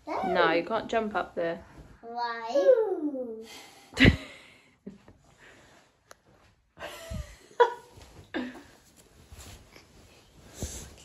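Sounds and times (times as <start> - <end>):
child yelping or giggling: 2.4 - 3.4.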